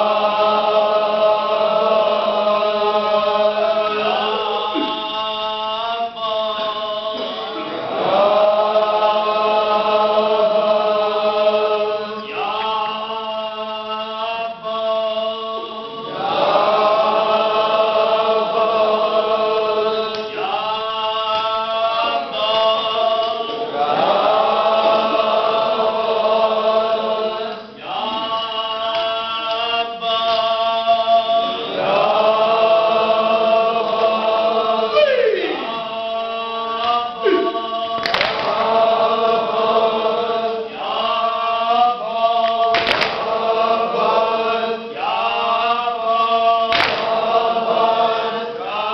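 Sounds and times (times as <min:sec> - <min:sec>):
men chanting in unison: 0:00.0 - 0:48.9
sharp knocks: 0:38.0 - 0:38.7, 0:42.7 - 0:43.4, 0:46.7 - 0:47.2.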